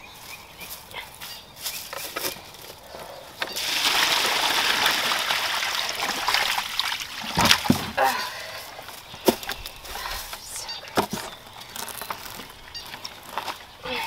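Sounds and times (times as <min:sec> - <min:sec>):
water pouring out: 0:03.5 - 0:08.0.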